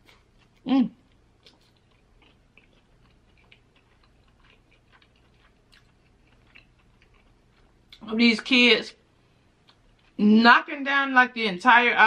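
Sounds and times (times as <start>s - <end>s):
chewing with mouth clicks: 0.0s - 8.0s, 9.6s - 10.2s.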